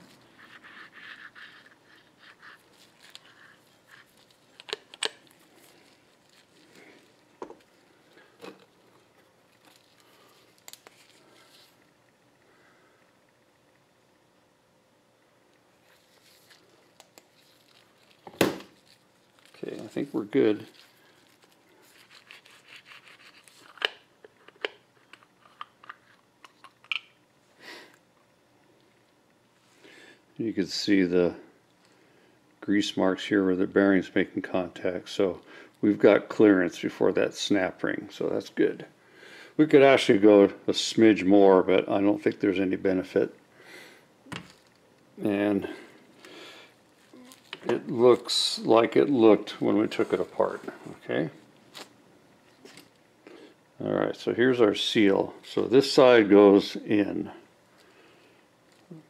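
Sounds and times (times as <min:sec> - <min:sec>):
rustling of gloved hands: 0:00.0 - 0:12.1, 0:15.6 - 0:26.3, 0:45.6 - 0:53.0
soft rustling: 0:15.7 - 0:23.6.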